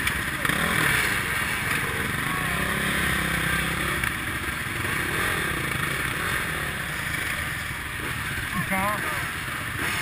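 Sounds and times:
motorcycle engines running: 0.0s - 10.0s
motorcycle idling: 0.0s - 10.0s.

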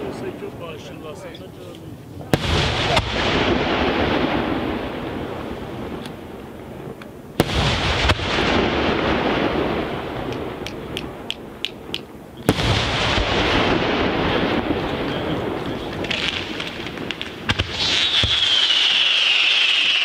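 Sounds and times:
firework shells bursting: 10.1s - 20.0s
small firework pops: 10.2s - 12.7s, 14.8s - 20.0s.

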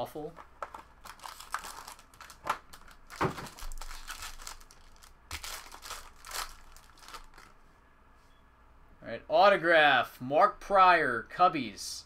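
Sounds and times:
plastic wrapping crinkling: 0.4s - 7.6s.

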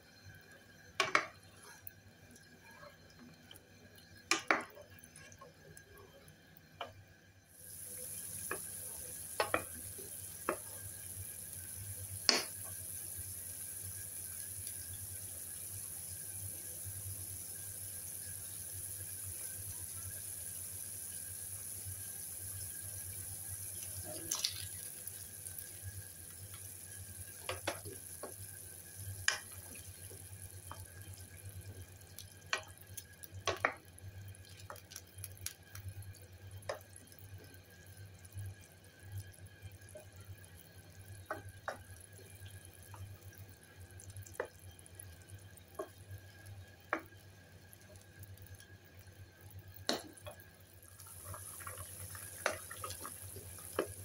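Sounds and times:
soup boiling and bubbling: 0.0s - 54.0s.

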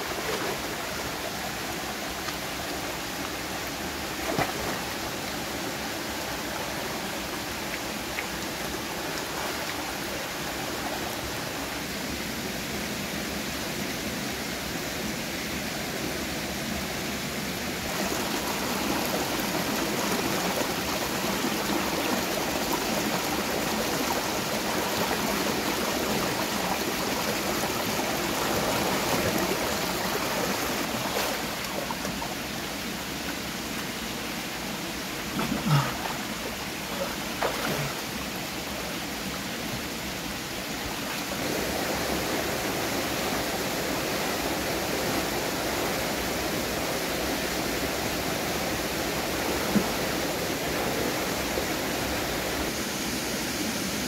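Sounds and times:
stream water flowing: 0.0s - 54.0s.

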